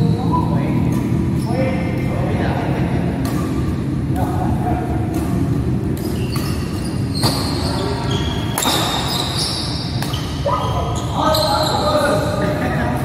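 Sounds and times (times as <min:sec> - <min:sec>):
steady low rumble: 0:00.0 - 0:06.0
rackets hitting shuttlecock: 0:03.1 - 0:04.3, 0:05.0 - 0:07.6, 0:08.4 - 0:10.5.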